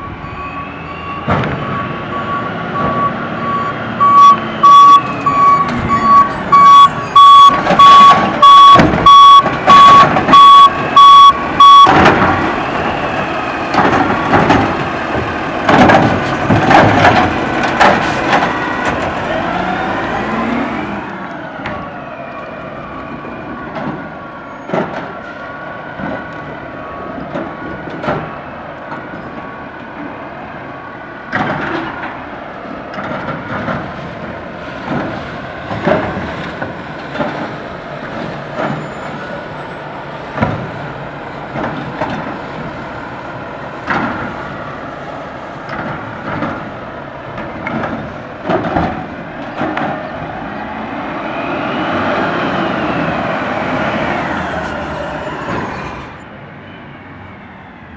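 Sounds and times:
garbage truck diesel engine: 0.0 - 57.9
carts knocking and banging: 4.7 - 20.0, 31.3 - 32.2, 32.9 - 39.6, 40.2 - 43.0, 43.8 - 44.6, 45.6 - 50.3.

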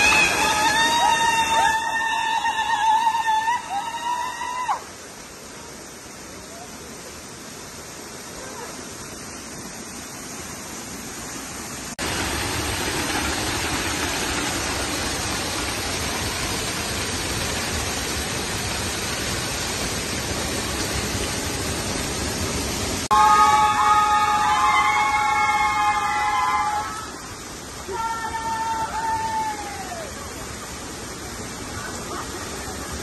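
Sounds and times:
waterfall pouring into a pool: 0.0 - 33.0.

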